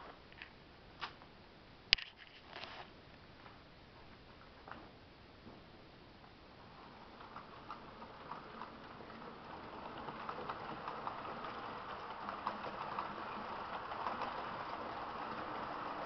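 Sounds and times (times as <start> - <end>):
model train rumbling on track: 6.5 - 16.0.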